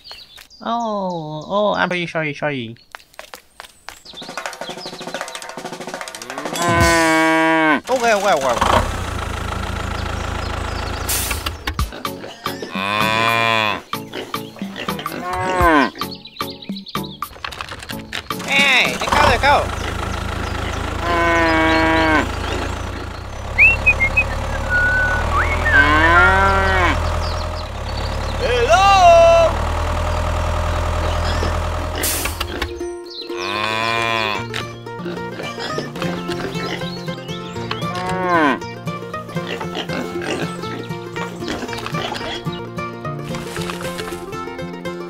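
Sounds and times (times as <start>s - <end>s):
cow mooing: 6.2s - 7.8s, 12.3s - 13.9s, 14.8s - 16.0s, 20.9s - 22.9s, 23.5s - 27.3s, 33.4s - 34.6s, 37.8s - 38.7s
low engine hum: 8.2s - 11.8s, 18.0s - 32.8s
short bird chirps: 23.6s - 26.3s.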